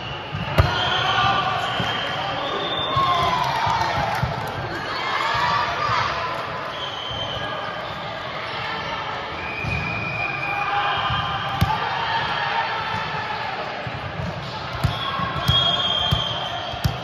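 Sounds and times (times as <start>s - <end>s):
volleyball hit: 11.5s - 11.8s.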